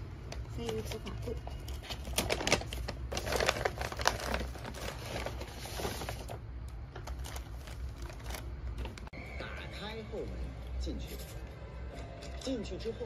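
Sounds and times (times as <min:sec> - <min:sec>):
paper bag crinkling: 0:01.7 - 0:09.1.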